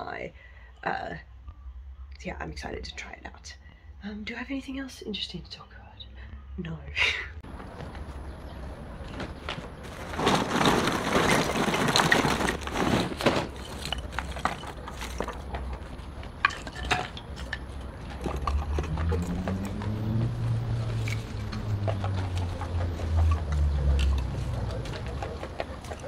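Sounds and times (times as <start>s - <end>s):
charcoal clattering onto metal: 9.1s - 19.3s
charcoal pieces clinking: 9.6s - 19.9s.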